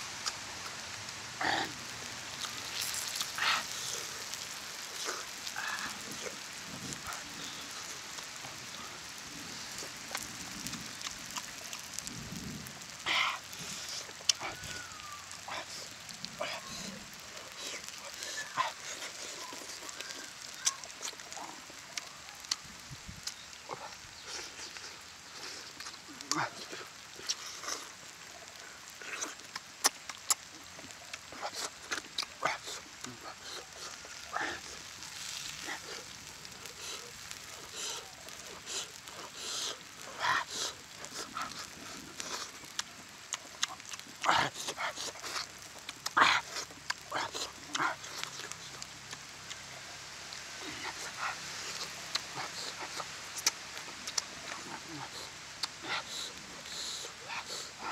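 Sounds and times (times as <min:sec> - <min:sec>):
chewing and lip-smacking: 0:00.2 - 0:00.9, 0:02.3 - 0:08.9, 0:09.5 - 0:50.0, 0:50.6 - 0:57.9
wet smacks and clicks: 0:02.3 - 0:06.2, 0:28.5 - 0:49.7, 0:50.6 - 0:57.9.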